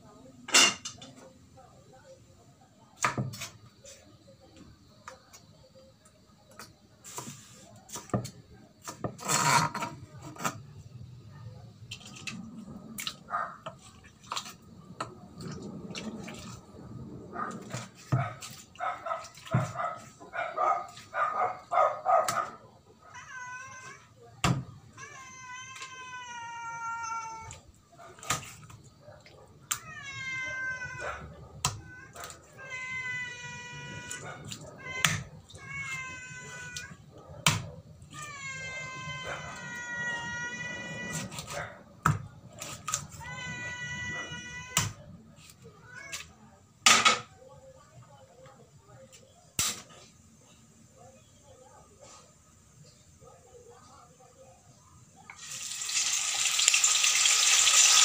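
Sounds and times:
cleaver scraping across board: 8.9s - 10.5s
cat meowing: 22.4s - 28.2s, 29.7s - 41.8s, 43.0s - 46.4s.

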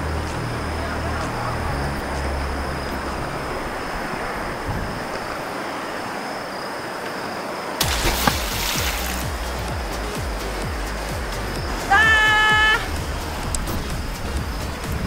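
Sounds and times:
low steady rumble: 0.0s - 5.4s
insects trilling: 0.0s - 15.0s.

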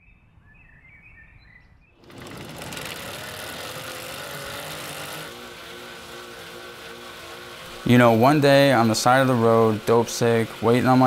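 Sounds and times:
faint bird chirps: 0.0s - 2.0s
bike wheel whirring on trainer: 2.0s - 11.0s.

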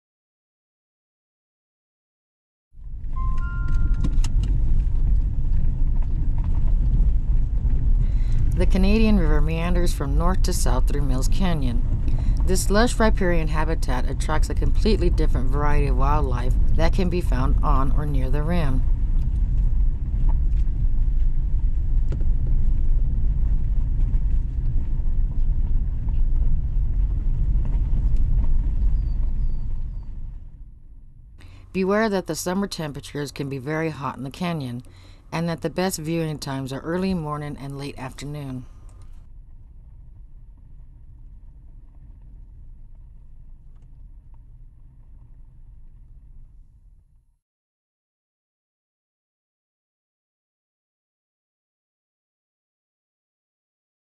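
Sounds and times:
engine and tyres rumbling: 2.8s - 9.4s, 18.6s - 31.7s
vehicle driving on dirt road: 2.8s - 9.7s, 10.3s - 31.7s.

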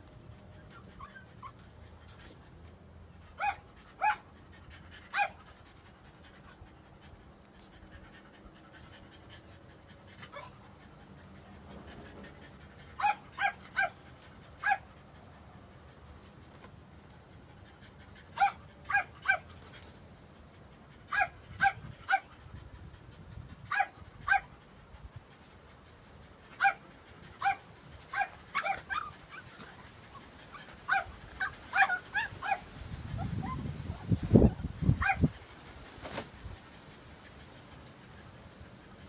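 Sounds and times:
dogs yipping: 0.6s - 2.3s, 3.3s - 6.2s, 10.0s - 10.8s, 11.4s - 15.0s, 17.7s - 19.6s, 21.0s - 22.4s, 23.6s - 24.6s, 26.5s - 35.4s.

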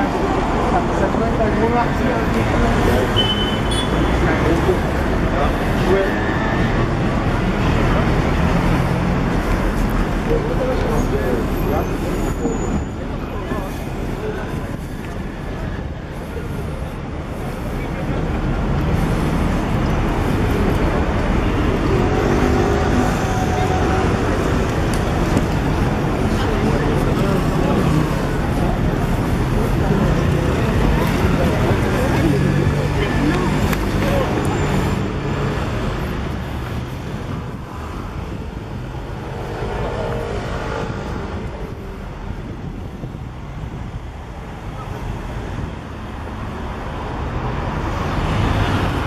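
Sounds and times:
city traffic rumble: 0.0s - 49.0s
wind on microphone: 36.2s - 46.1s.

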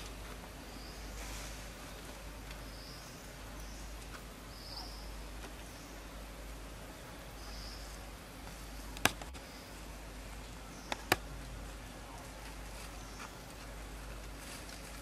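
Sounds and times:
outdoor background hiss: 0.0s - 15.0s
sharp clicks: 9.0s - 9.4s, 10.9s - 11.3s.

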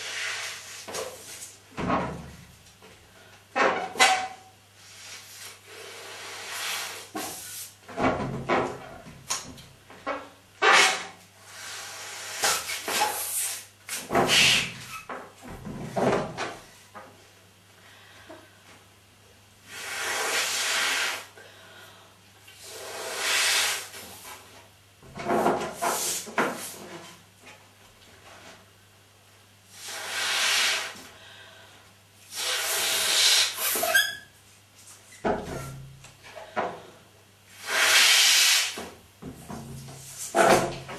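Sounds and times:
balloon squeak: 14.3s - 15.0s, 32.3s - 34.3s
breaths blowing up balloon: 19.7s - 21.3s, 22.6s - 24.0s, 29.8s - 31.0s, 32.3s - 33.9s, 37.6s - 38.8s.

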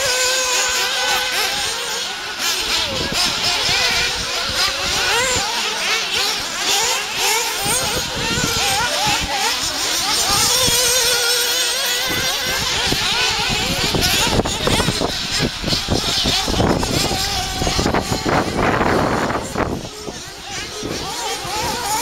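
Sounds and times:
small engines whining high-pitched: 0.0s - 22.0s.

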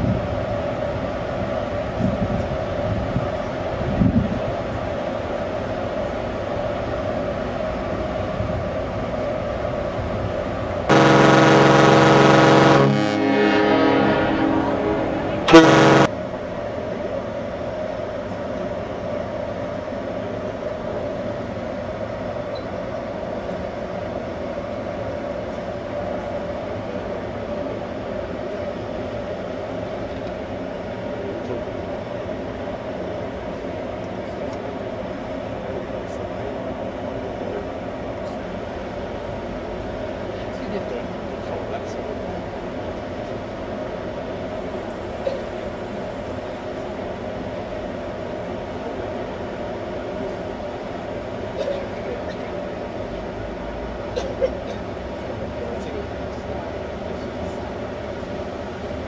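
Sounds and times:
wind on deck: 0.0s - 16.7s
ship hum: 0.0s - 59.0s
deep ship's horn blast: 10.9s - 16.2s.

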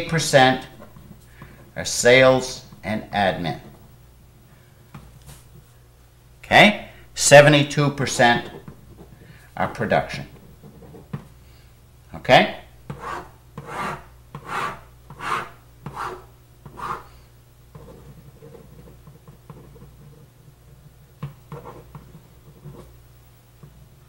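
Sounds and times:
steady low hum: 0.0s - 24.0s
pen scratching on paper: 12.9s - 17.1s, 21.5s - 22.9s.

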